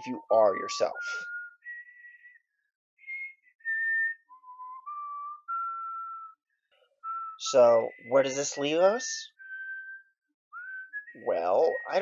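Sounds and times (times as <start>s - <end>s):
person whistling a tune: 0.0s - 12.0s.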